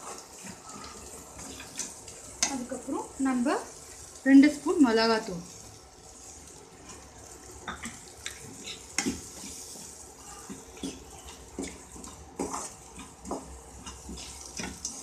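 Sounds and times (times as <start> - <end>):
frying sizzle: 0.0 - 15.0
steel spoon scraping a pan: 8.4 - 14.7.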